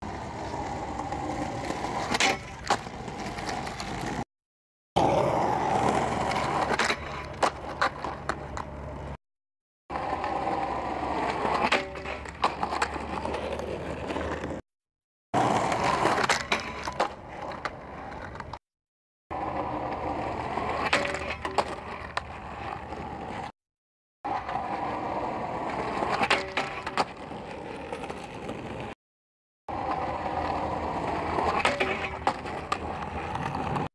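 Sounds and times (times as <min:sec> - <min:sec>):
skateboard wheels rolling on concrete: 0:00.0 - 0:04.3, 0:05.0 - 0:09.2, 0:09.9 - 0:14.6, 0:15.4 - 0:18.6, 0:19.3 - 0:23.6, 0:24.2 - 0:29.0, 0:29.7 - 0:33.9
skateboard hitting metal rail: 0:20.8 - 0:21.7, 0:31.5 - 0:32.5.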